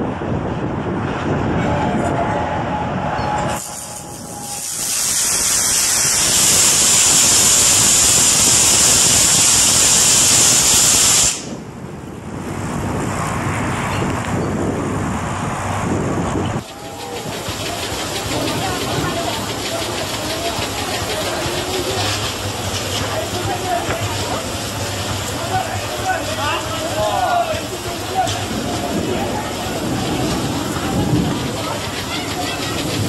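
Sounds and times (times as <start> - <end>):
electric arc hissing: 3.6 - 11.5.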